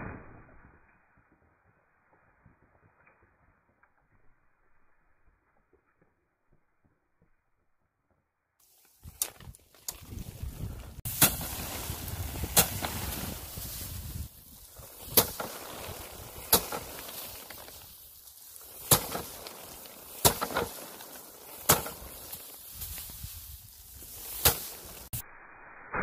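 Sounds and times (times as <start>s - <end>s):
rice stalks whacking bamboo rack: 11.0s - 25.2s.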